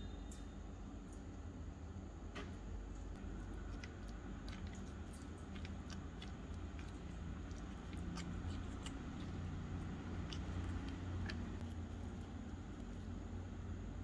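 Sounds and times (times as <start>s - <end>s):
steady low hum: 0.0s - 14.0s
spoon stirring thick paste: 3.2s - 13.5s.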